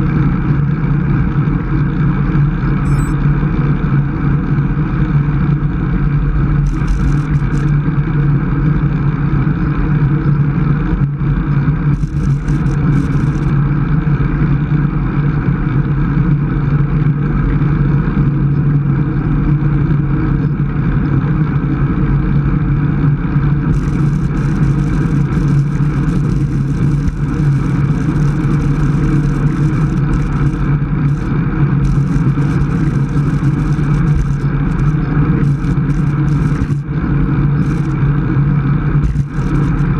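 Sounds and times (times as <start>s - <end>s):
road and tyre noise: 0.0s - 39.9s
wind rushing over microphone: 20.9s - 39.9s.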